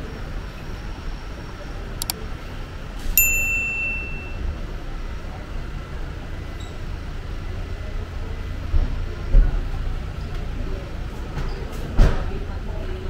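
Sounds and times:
road traffic rumble: 0:00.0 - 0:13.0
sharp metallic ding: 0:03.2 - 0:04.5.

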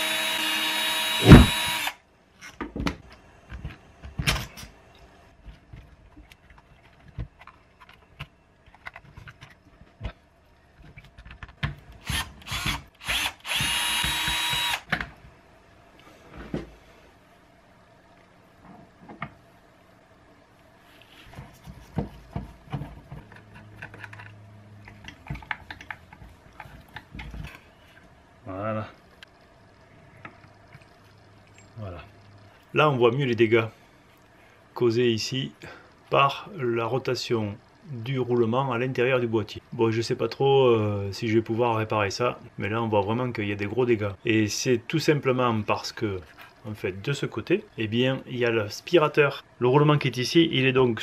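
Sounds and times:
cordless drill running: 0:00.0 - 0:02.0, 0:12.0 - 0:14.9.

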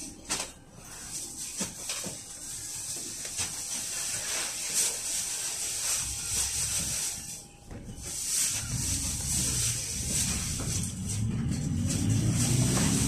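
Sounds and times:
engine rumble: 0:08.5 - 0:13.0.

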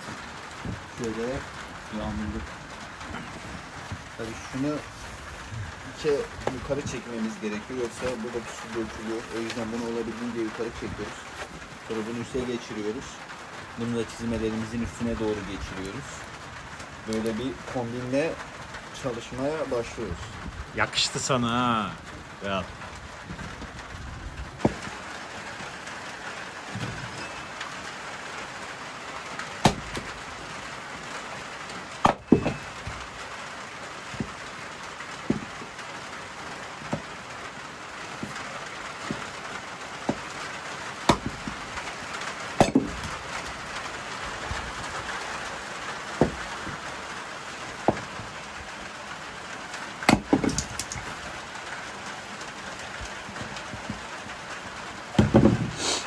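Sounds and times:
steady rain: 0:00.0 - 0:56.0
sharp knocks and taps: 0:35.2 - 0:35.7, 0:41.1 - 0:41.6.

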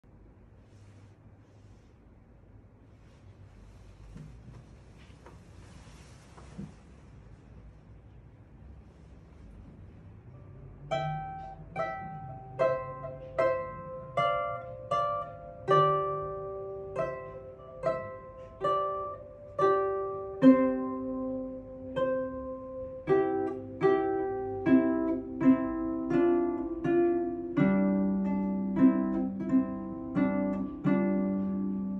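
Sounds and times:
low harp notes: 0:10.3 - 0:31.9
harp plucked melody: 0:10.4 - 0:31.9.

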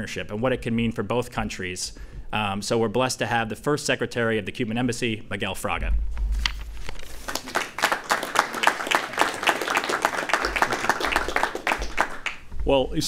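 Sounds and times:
small group applauding: 0:07.0 - 0:12.5.

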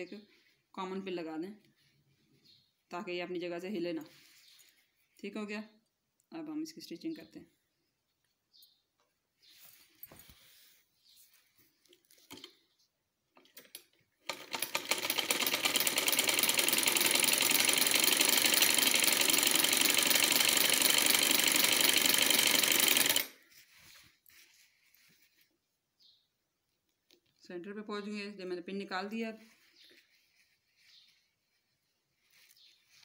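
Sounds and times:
sewing machine stitching: 0:13.4 - 0:23.4.

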